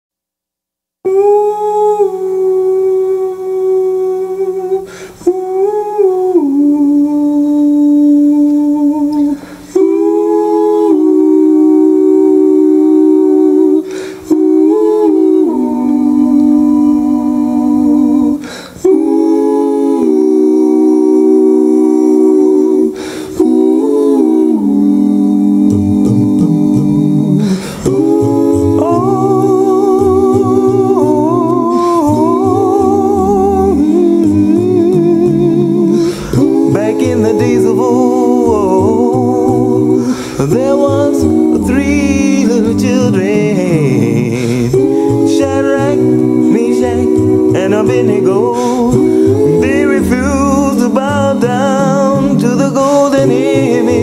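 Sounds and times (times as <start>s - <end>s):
male voices humming chords: 1.0s - 54.0s
bass voice: 25.5s - 54.0s.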